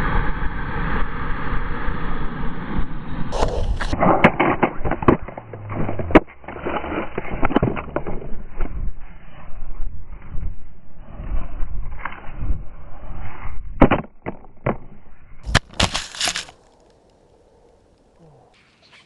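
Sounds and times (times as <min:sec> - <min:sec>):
wind rush: 0:00.0 - 0:06.2, 0:07.2 - 0:13.8
longboard wheels rolling on asphalt: 0:00.0 - 0:17.1
scraping on pavement: 0:03.3 - 0:10.3, 0:11.4 - 0:17.2
board crashing and clattering: 0:03.4 - 0:08.2.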